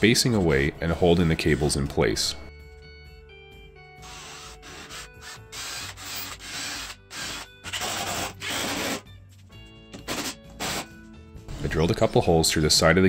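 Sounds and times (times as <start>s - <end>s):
faint background music: 0.0s - 13.0s
cordless drill driving screws: 4.0s - 9.0s.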